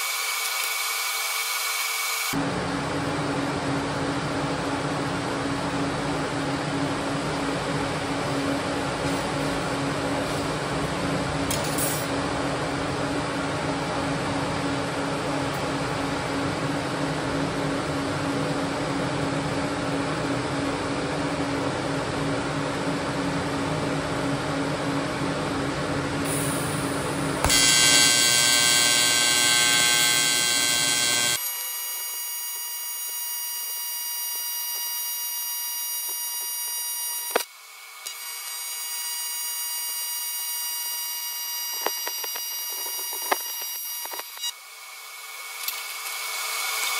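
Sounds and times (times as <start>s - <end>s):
welder arc buzzing: 0.0s - 2.4s, 26.2s - 46.9s.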